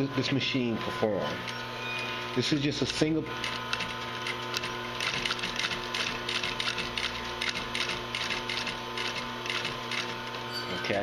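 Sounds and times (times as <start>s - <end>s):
sewing machine hum: 3.0s - 10.4s
sewing machine clicking: 3.4s - 10.1s.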